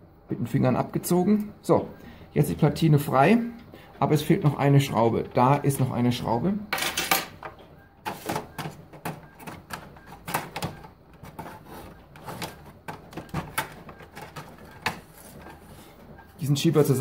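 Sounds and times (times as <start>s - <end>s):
plastic printer parts clicking: 7.5s - 15.6s.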